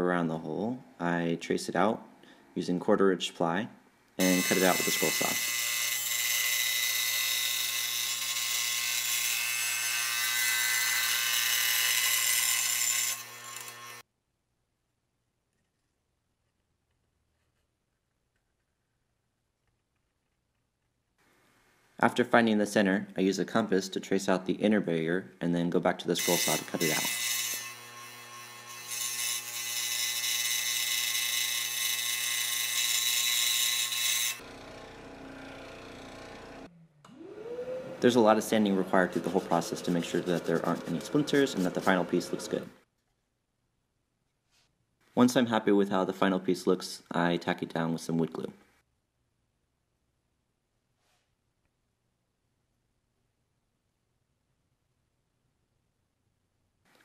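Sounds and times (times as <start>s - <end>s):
scroll saw cutting wood: 4.2s - 14.0s, 26.2s - 42.8s.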